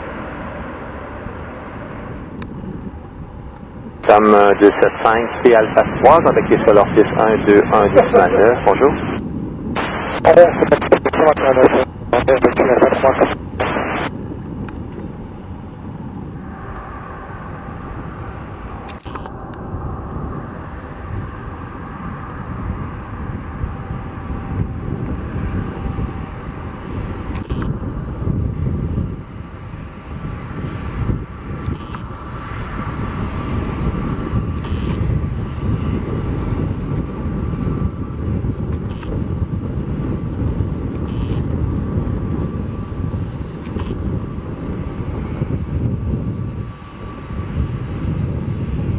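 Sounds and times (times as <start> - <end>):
jet engines rumbling with high whine: 0.0 - 48.9.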